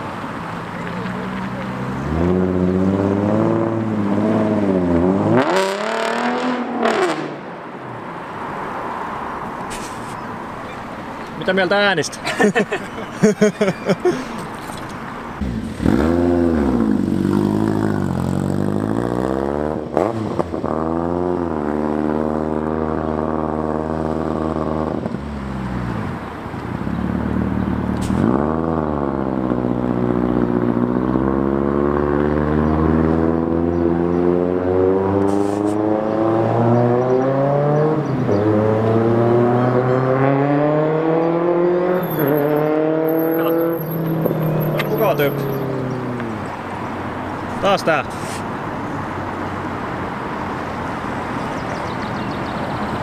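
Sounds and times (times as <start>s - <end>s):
vehicle engine accelerating: 0.7s - 7.5s, 15.4s - 47.4s.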